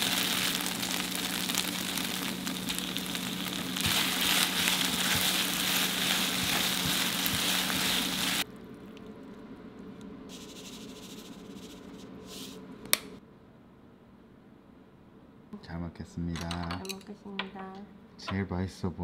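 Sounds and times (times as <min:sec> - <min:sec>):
beef sizzling in a frying pan: 0:00.0 - 0:08.4.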